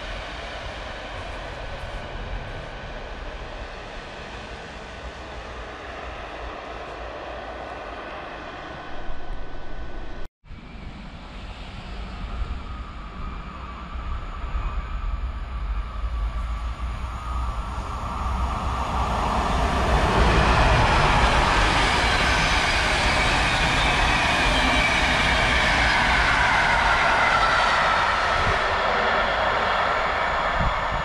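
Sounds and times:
train coaches rolling past: 16.0 - 31.0.

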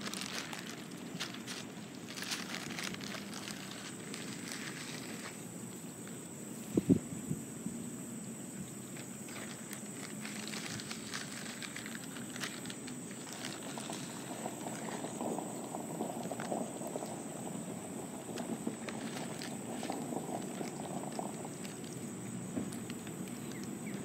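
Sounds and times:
bills pecking and clicking: 0.0 - 5.4, 9.3 - 17.2, 18.3 - 24.0
high insect drone: 0.0 - 24.0.

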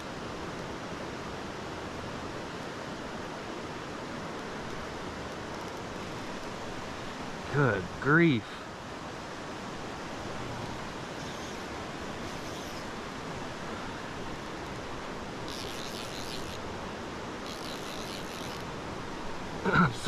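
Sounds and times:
stream rushing over rocks: 0.0 - 20.0
fishing reel clicker buzzing: 11.2 - 12.9, 15.4 - 16.7, 17.4 - 18.7.

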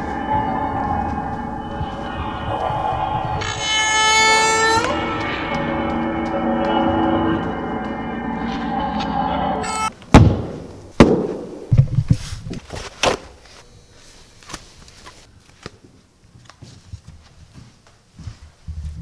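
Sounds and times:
background music: 0.0 - 9.9
loud sharp thuds: 10.1 - 11.8.

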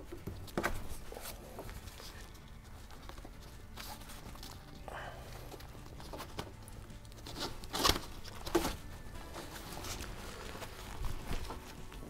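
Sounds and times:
strap rustling and scraping on fabric: 5.6 - 12.0.

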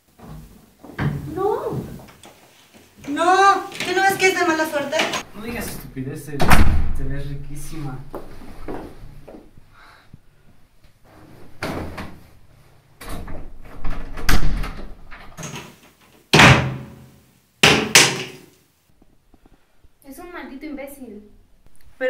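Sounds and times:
wooden door banging shut: 6.4 - 7.1, 13.0 - 17.0, 17.6 - 18.4.

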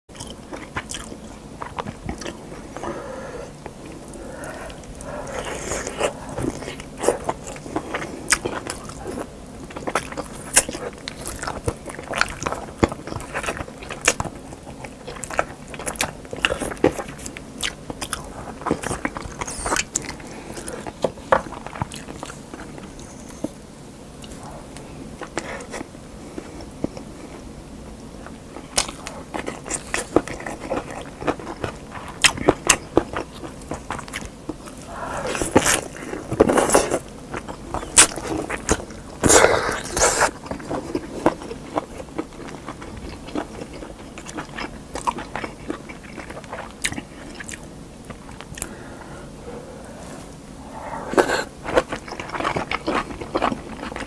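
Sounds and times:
wet chewing: 0.1 - 23.6, 28.2 - 54.0.

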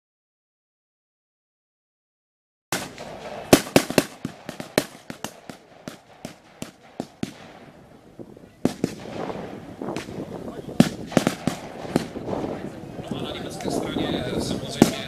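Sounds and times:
blank gunfire shots: 2.8 - 7.9, 8.6 - 12.9, 14.7 - 15.0.

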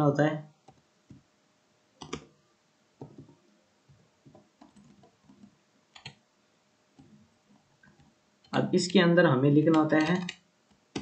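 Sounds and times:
computer keyboard key clicks: 2.0 - 2.3, 9.7 - 10.4.

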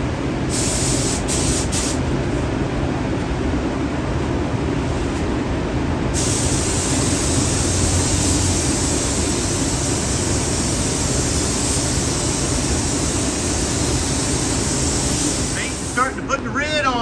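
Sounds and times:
spray gun hissing: 0.5 - 2.0, 6.2 - 16.2.

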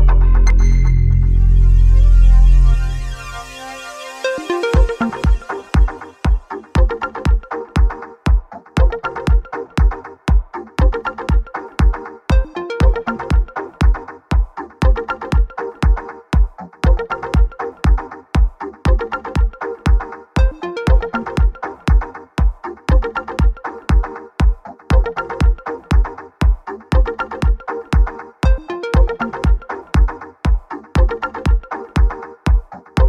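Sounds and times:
held synth notes: 0.0 - 7.9
electronic dance music: 0.0 - 33.0
kick drum beat: 4.8 - 33.0.

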